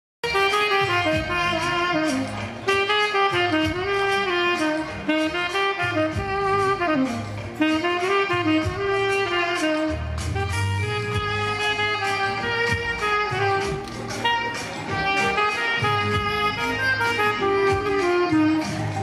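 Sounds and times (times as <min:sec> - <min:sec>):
saxophone melody: 0:00.2 - 0:19.0
bass and drums: 0:00.4 - 0:19.0.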